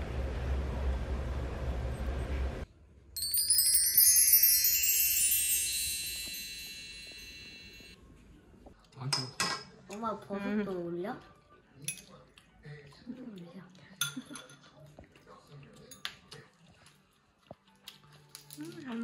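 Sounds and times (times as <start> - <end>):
wind chime shimmer: 3.2 - 8.0
dishes clinking: 9.1 - 9.8, 11.9 - 12.1, 14.0 - 14.7.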